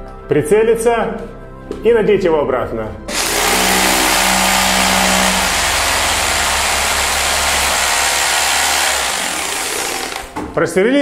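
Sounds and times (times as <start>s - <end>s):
rotary hammer drilling into concrete: 3.1s - 10.4s.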